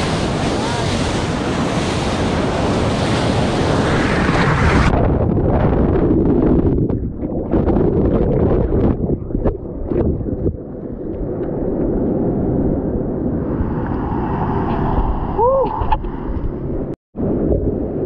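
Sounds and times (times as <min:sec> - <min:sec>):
whitewater churning: 0:00.0 - 0:04.9.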